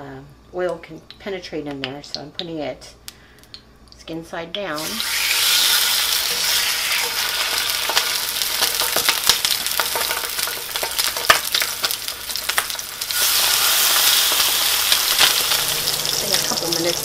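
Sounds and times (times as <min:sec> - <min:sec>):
meat sizzling in oil: 0:04.8 - 0:17.0.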